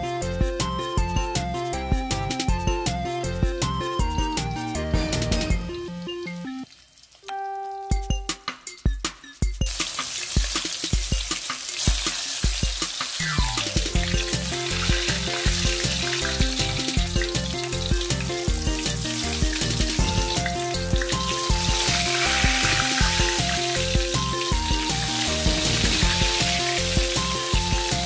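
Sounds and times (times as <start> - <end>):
background music with beat: 0.0 - 6.6, 7.3 - 28.0
fish frying in oil: 5.6 - 8.4, 9.7 - 28.0.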